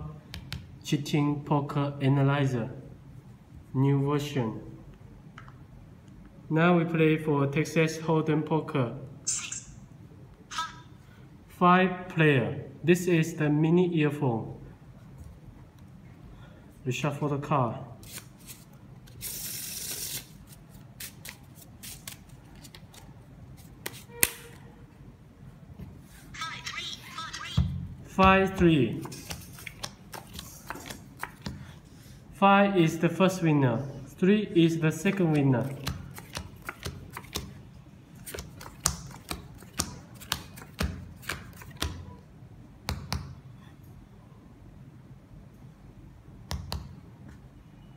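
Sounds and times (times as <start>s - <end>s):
cards riffle shuffling: 18.0s - 24.4s, 28.9s - 31.8s, 35.0s - 37.6s, 38.2s - 42.0s
cards clicking and tapping: 28.3s - 31.7s, 35.0s - 37.6s, 38.2s - 42.1s.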